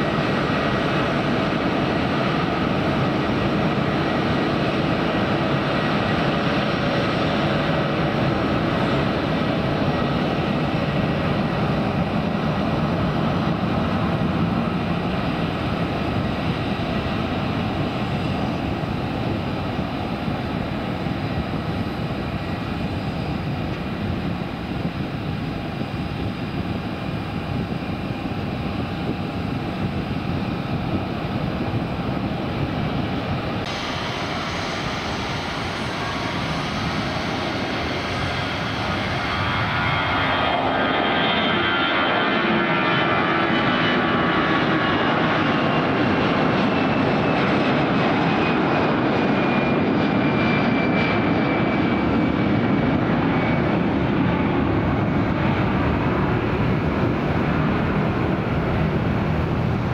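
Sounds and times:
airliner engines rumbling: 0.0s - 59.9s.

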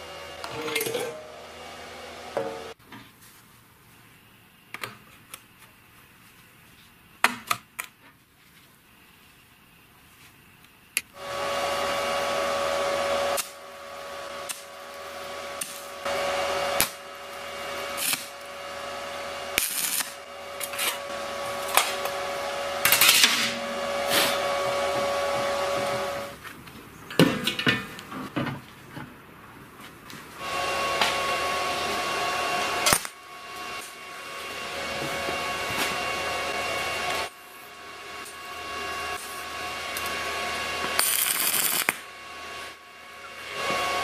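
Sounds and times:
electric motor whining: 11.2s - 26.4s
hissing bursts: 11.2s - 26.4s.

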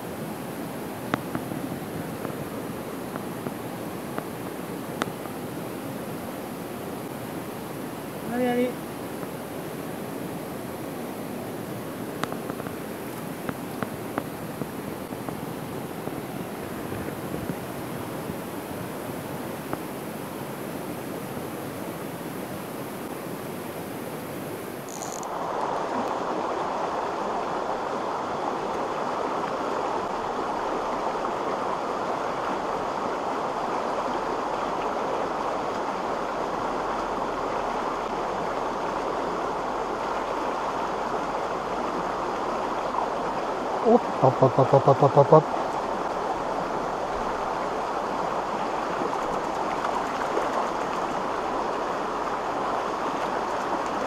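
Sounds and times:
stream rushing over stones: 0.0s - 54.0s
light ticks: 5.0s - 5.2s.

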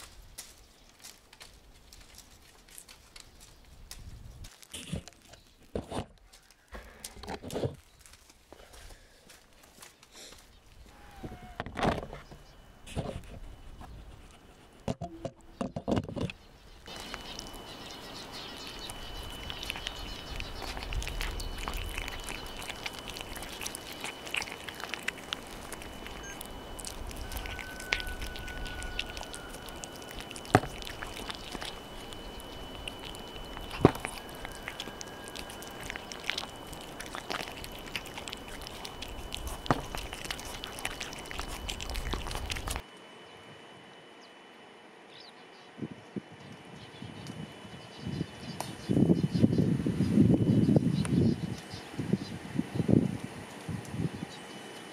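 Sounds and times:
cats chewing: 0.0s - 5.7s, 16.2s - 42.9s.

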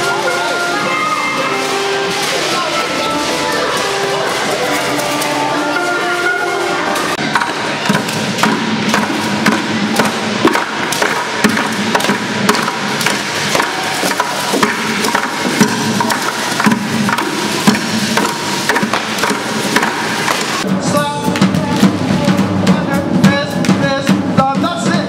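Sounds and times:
random wooden knocks and clicks: 7.0s - 20.6s.

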